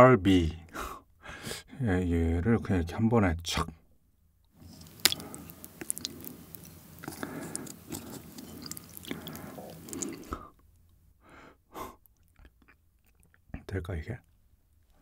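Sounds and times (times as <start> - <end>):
wet squishing and sloshing: 4.6 - 10.4.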